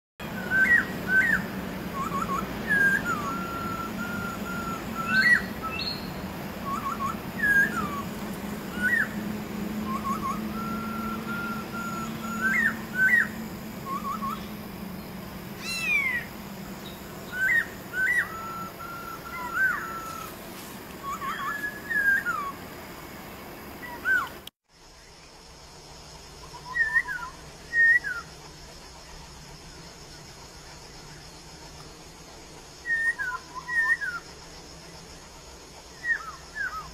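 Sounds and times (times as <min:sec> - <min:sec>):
bird singing whistled phrases: 0:00.2 - 0:09.2, 0:09.8 - 0:14.6, 0:15.6 - 0:20.3, 0:21.0 - 0:22.6, 0:23.8 - 0:24.4, 0:26.5 - 0:28.3, 0:32.8 - 0:34.3, 0:36.0 - 0:36.9.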